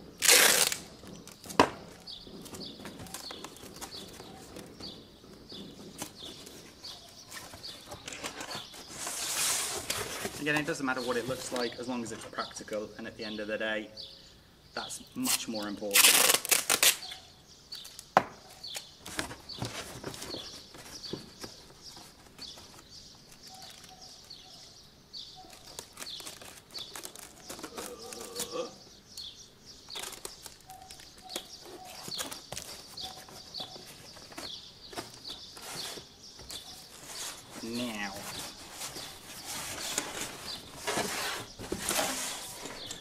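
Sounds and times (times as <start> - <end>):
birds chirping: 0.0 - 43.0
cardboard rustling and knocking: 0.6 - 11.7, 18.2 - 23.9, 30.0 - 43.0.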